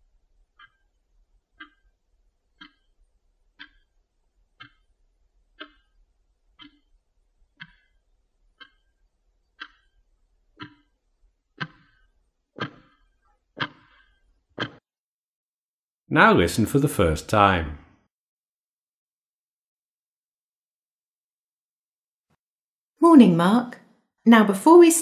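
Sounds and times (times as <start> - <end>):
clock ticking: 0.0 - 14.8.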